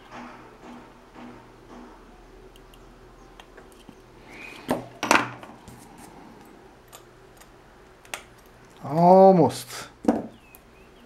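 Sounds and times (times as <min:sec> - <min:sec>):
sharp knocks: 0:00.0 - 0:02.2.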